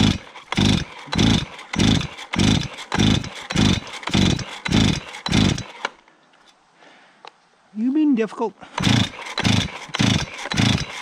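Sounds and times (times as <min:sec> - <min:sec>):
chainsaw starter rope pulls: 0:00.0 - 0:06.0, 0:08.8 - 0:11.0
engine cranking: 0:00.0 - 0:06.0, 0:08.8 - 0:11.0.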